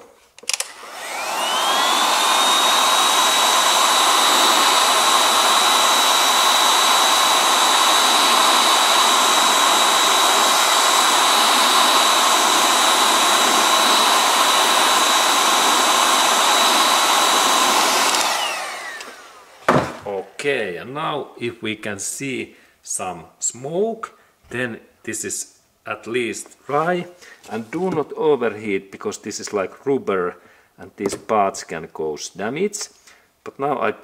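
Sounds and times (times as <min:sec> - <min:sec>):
heat gun blowing: 0:00.4 - 0:20.1.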